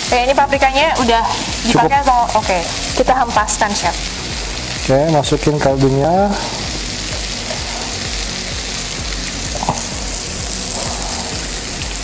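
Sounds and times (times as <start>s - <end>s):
roux sizzling in a frying pan: 0.0s - 12.0s.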